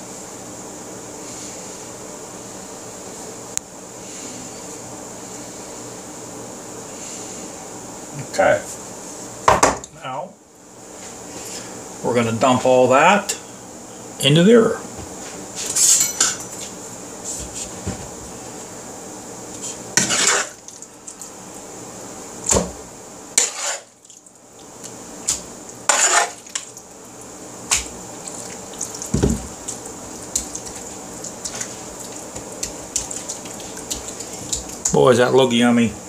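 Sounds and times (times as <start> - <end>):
faint hum: 0.0 - 36.0
metal spoon scraping a bowl: 20.0 - 20.6, 23.4 - 23.9, 25.9 - 26.4.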